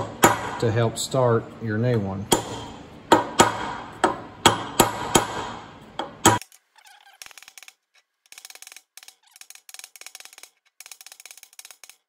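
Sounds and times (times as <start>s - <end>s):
hammer striking metal: 0.0s - 0.7s, 2.3s - 6.4s.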